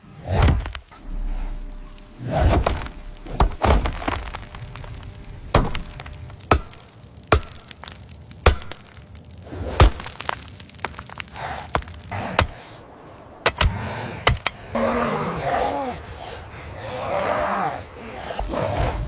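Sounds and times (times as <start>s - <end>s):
wood cracking and splintering: 0.4s - 12.8s.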